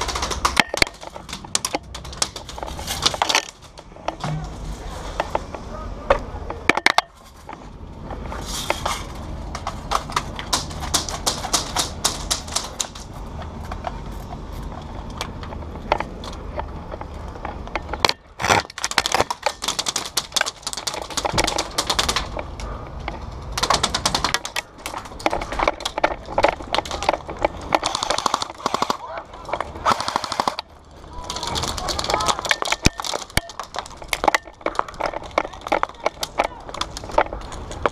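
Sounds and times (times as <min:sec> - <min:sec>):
airsoft guns firing bursts: 0:27.7 - 0:33.8.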